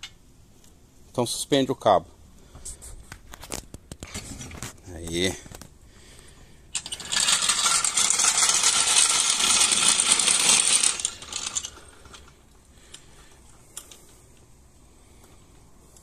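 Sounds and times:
floor jack scraping on asphalt: 0:07.0 - 0:12.3.

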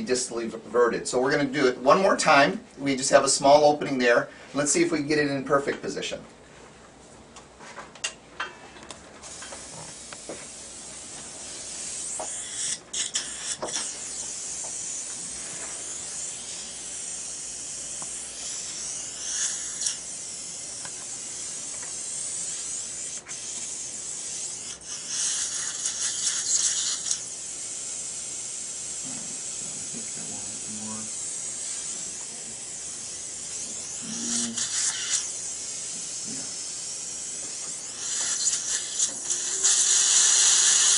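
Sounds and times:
irrigation spray and suction hiss: 0:09.2 - 0:40.9
surgical drill drilling bone: 0:11.6 - 0:27.8, 0:28.9 - 0:40.9.

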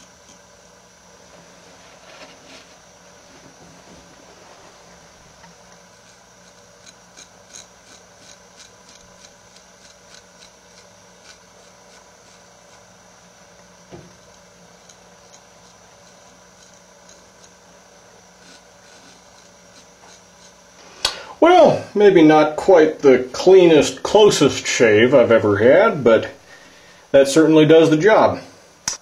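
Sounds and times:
steady hum: 0:00.0 - 0:29.0
knife blade scraping beard hair: 0:05.7 - 0:13.0, 0:14.1 - 0:17.6, 0:18.3 - 0:20.7.

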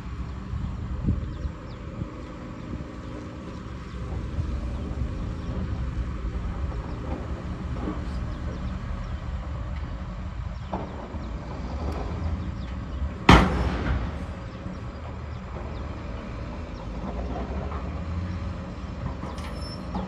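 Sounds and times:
diesel truck engines rumbling: 0:00.0 - 0:20.0
loud sharp bang: 0:13.3 - 0:14.4.

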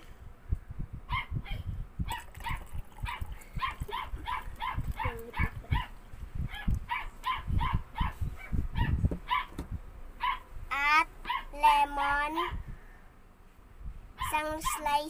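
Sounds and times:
small dog yapping: 0:01.1 - 0:09.6, 0:11.2 - 0:11.6, 0:14.2 - 0:14.9.

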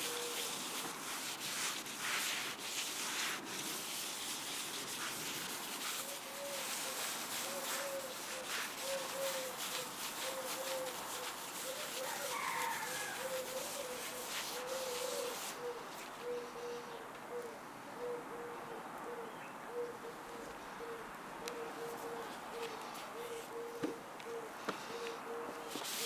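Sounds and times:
dove cooing: 0:06.0 - 0:26.0
hand wiping oil on tabletop: 0:25.7 - 0:26.0.

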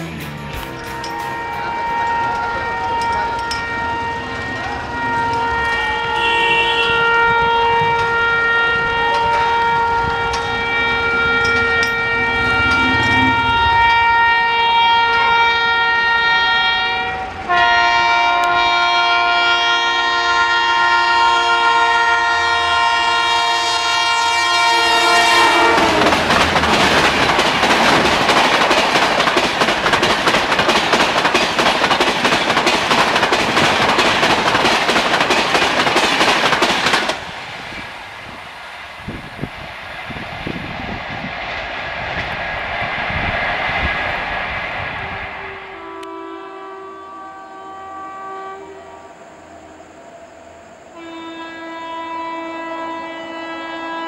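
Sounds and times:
train coaches rushing and clattering: 0:00.0 - 0:46.7
locomotive horn: 0:00.6 - 0:27.0, 0:45.0 - 0:49.8, 0:50.9 - 0:54.0
distant train horn: 0:00.7 - 0:28.0, 0:44.9 - 0:54.0.

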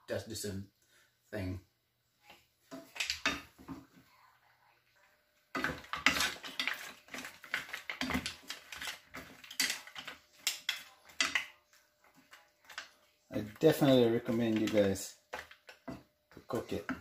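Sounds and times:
shells clacking in frying pan: 0:02.7 - 0:03.6, 0:05.5 - 0:17.0.

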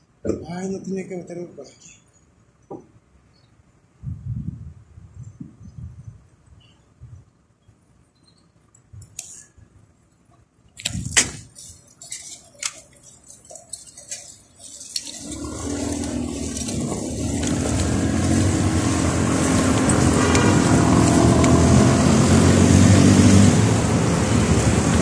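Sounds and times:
street traffic: 0:04.8 - 0:25.0
low hum: 0:15.1 - 0:25.0
wind rushing: 0:15.7 - 0:25.0.

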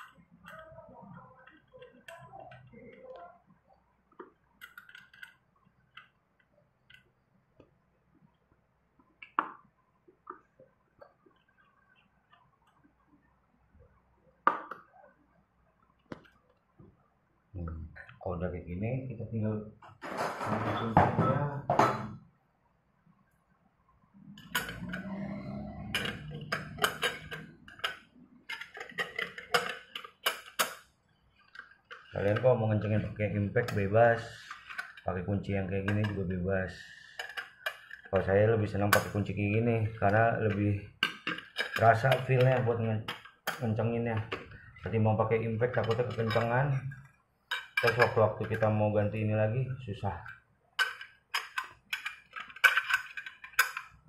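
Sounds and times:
spanner clinking and scraping: 0:04.6 - 0:06.0, 0:24.2 - 0:36.4, 0:37.0 - 0:48.8, 0:50.2 - 0:54.0.

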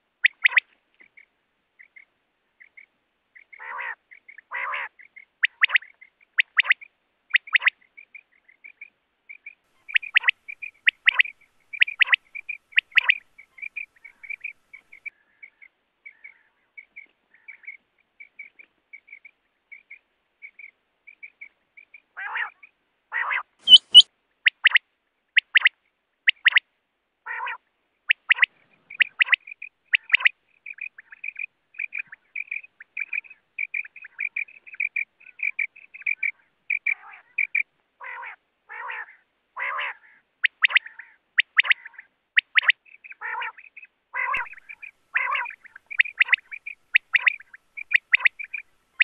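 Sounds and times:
quail calling: 0:00.2 - 0:00.6, 0:03.4 - 0:07.7, 0:09.8 - 0:15.1, 0:23.2 - 0:24.8, 0:27.3 - 0:49.0.

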